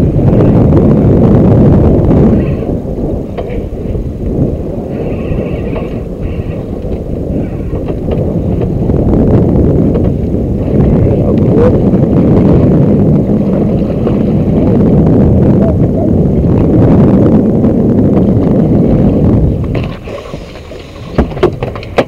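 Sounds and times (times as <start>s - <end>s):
wind rumble on microphone: 0.0s - 22.0s
water splashing against boat: 2.3s - 16.8s, 18.1s - 22.0s.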